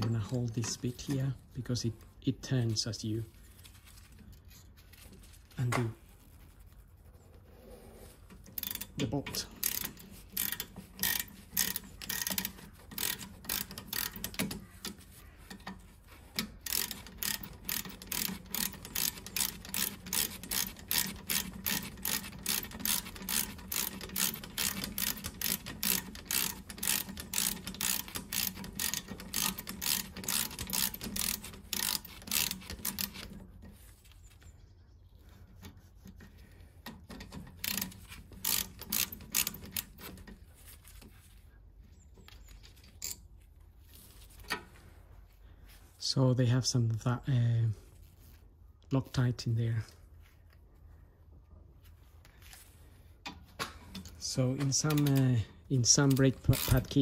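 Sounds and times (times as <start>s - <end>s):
ratchet wrench clicking: 8.2s - 33.4s, 36.8s - 40.3s, 54.8s - 55.2s, 55.9s - 57.0s.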